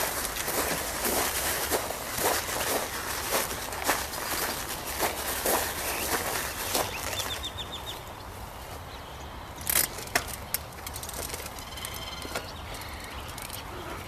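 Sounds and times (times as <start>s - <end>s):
small bird chirping: 11.6s - 14.0s.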